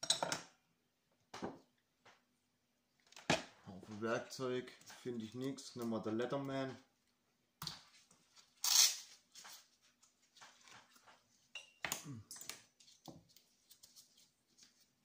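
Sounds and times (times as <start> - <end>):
multitool rustling and scraping: 7.9 - 11.5.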